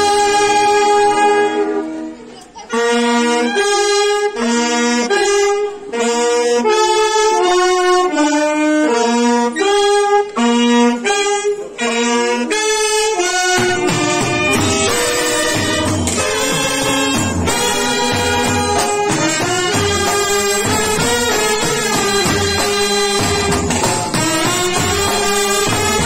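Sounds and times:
brass band playing: 0.0 - 26.0
drums: 13.3 - 26.0.

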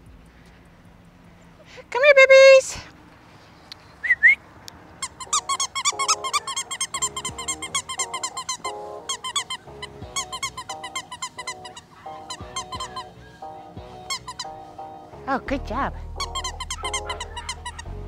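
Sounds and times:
puppies squealing and yipping: 5.0 - 14.8, 16.2 - 18.0
puppies whining and grumbling: 5.0 - 14.8, 16.2 - 18.0.

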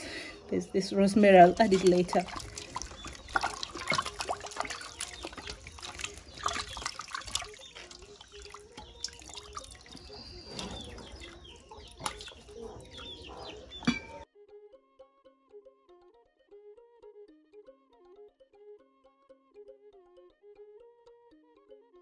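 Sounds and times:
water splashing and dripping: 1.1 - 14.2.

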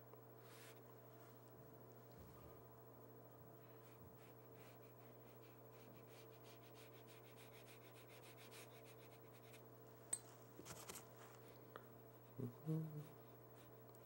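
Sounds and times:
low steady hum: 0.0 - 14.0
brush swishing on paper: 3.7 - 9.6.

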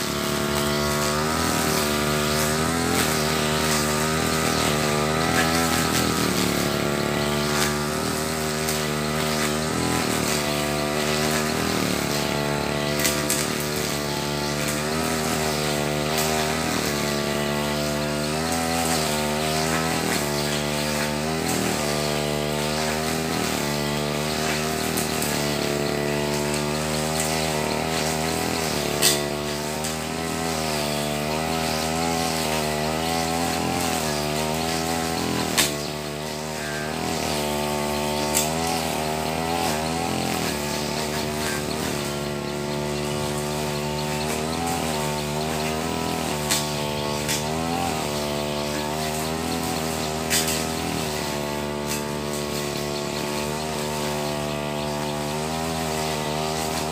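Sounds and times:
brush cutter engine cutting grass: 0.0 - 56.9.

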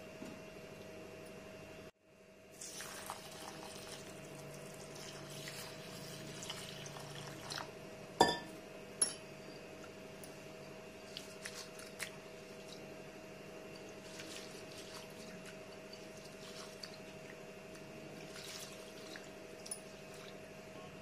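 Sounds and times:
hand swishing rice in water: 14.0 - 17.0.

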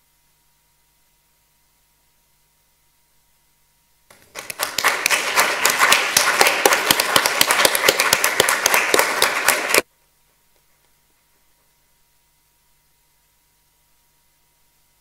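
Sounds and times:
audience applauding: 4.1 - 9.8.

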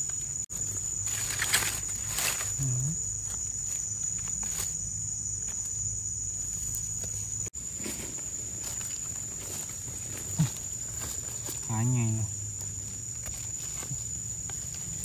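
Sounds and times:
high-pitched insect drone: 0.0 - 15.0
footsteps in leaf litter: 0.5 - 2.6.

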